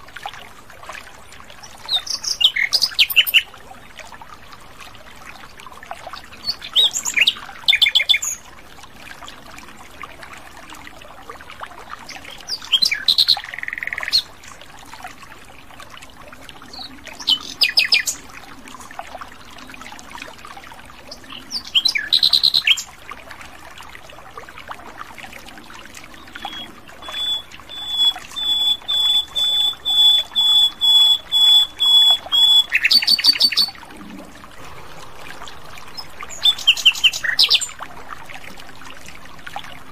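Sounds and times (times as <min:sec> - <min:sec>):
nightingale singing: 0:26.2 - 0:33.7.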